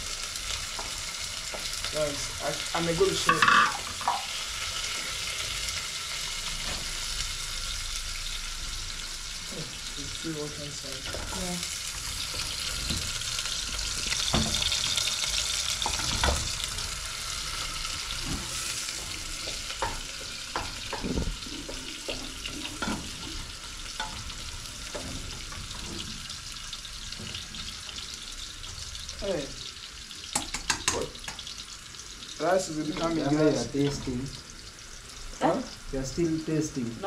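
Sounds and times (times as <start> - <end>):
onions sizzling in a pot: 0.0 - 37.0
spoon knocking in a pot: 30.4 - 31.5.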